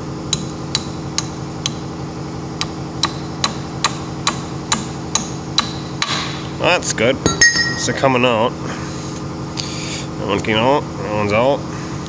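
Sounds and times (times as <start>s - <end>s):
steady hum: 2.6s - 11.8s
hammer tapping on steel: 7.3s - 8.0s.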